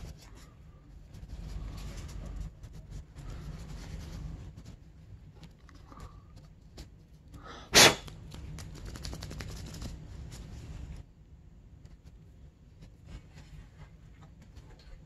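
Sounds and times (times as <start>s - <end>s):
person sneezing: 7.5s - 8.1s.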